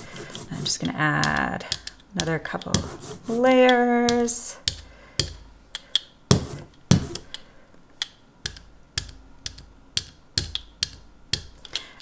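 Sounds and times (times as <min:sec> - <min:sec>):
rubber brayer rolling ink: 0:00.0 - 0:04.8, 0:06.3 - 0:07.2.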